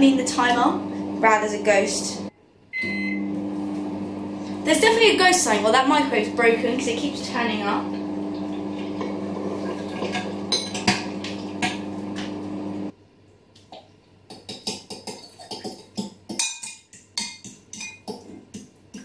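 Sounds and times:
microwave oven humming: 0.1s - 12.9s.

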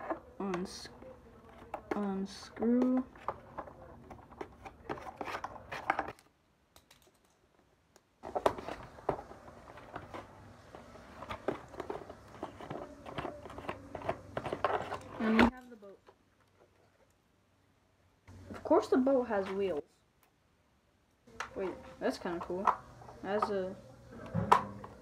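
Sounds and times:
cardboard and plastic crinkling: 8.2s - 15.6s.

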